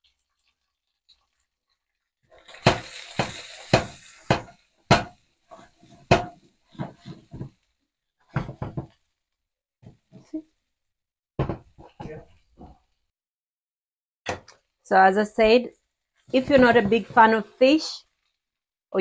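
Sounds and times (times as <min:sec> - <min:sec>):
frying hiss: 0:02.2 - 0:09.0
spatula knocking on frying pan: 0:02.6 - 0:05.2, 0:05.8 - 0:07.6, 0:08.3 - 0:09.0, 0:11.4 - 0:12.3.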